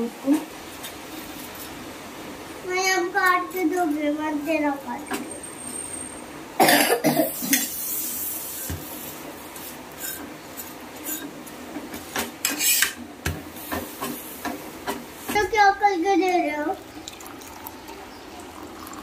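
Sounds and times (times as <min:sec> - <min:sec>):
spatula scraping on iron griddle: 0:07.5 - 0:13.0.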